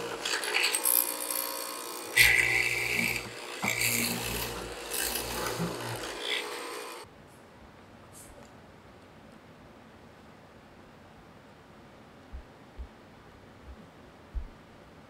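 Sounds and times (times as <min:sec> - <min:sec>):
mortiser motor running under load: 0:00.0 - 0:07.0
chisel grinding through wood: 0:00.0 - 0:07.1.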